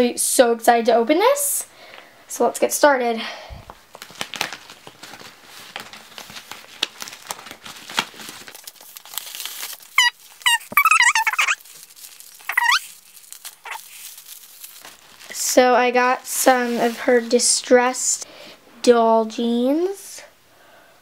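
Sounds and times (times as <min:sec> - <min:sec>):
paper mailer crinkling: 0:03.9 - 0:15.4
high-pitched squeaky cries: 0:09.9 - 0:11.6, 0:12.4 - 0:13.0, 0:13.6 - 0:13.8.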